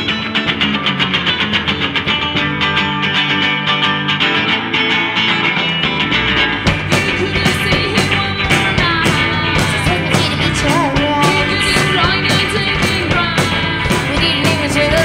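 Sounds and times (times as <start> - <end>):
electric guitars strumming: 0.0 - 15.0
drums playing steady beat: 6.6 - 15.0
woman singing: 6.6 - 15.0.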